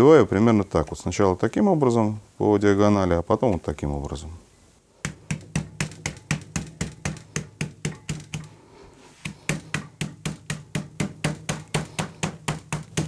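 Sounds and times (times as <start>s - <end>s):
knife knocking on meat: 5.0s - 8.5s, 9.2s - 13.0s.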